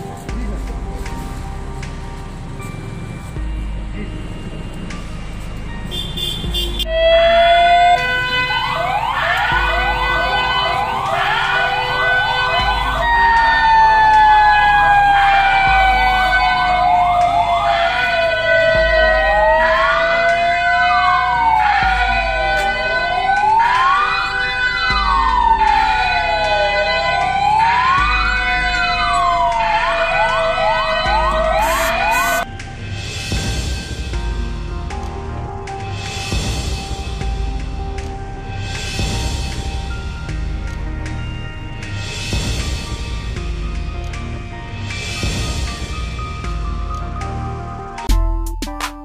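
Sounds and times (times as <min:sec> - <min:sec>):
electronic siren rising yelp: 0:06.9 - 0:32.5.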